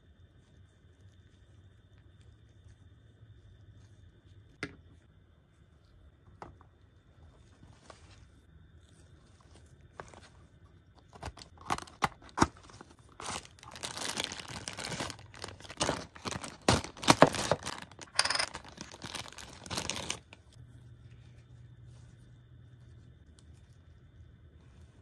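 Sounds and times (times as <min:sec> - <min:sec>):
plastic bag crinkling: 0:11.1 - 0:20.6.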